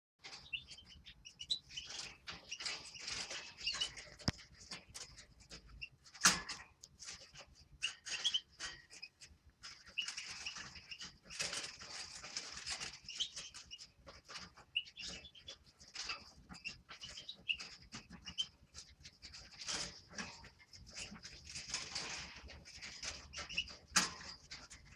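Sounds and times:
finches chirping: 0.3 - 4.0, 7.8 - 9.1.

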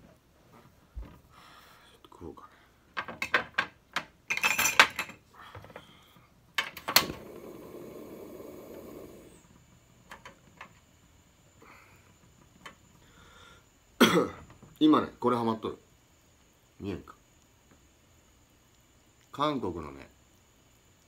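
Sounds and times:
rushing hiss: 7.2 - 9.6
faint ticks: 17.3 - 19.4.

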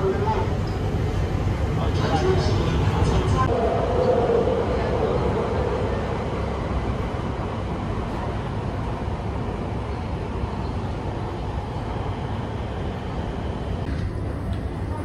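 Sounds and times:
subway train wheels rumbling on rails: 0.0 - 15.0.

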